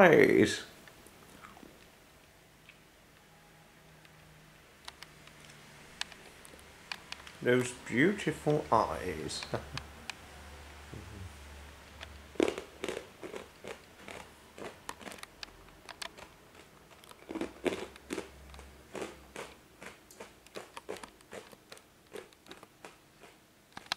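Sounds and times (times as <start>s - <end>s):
person chewing crunchy food: 12.3s - 23.9s.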